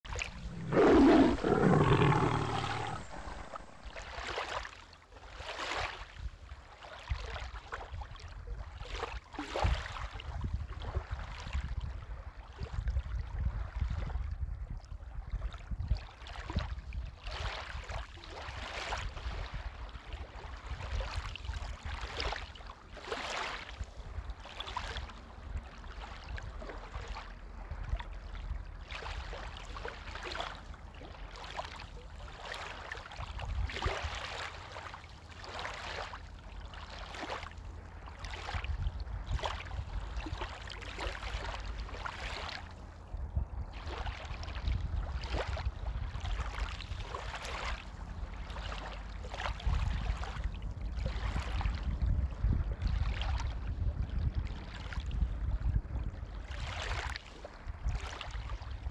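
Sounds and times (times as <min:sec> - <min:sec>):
low steady rumble: 0:00.0 - 0:04.1
waves lapping on a pebble shore: 0:28.8 - 0:42.7.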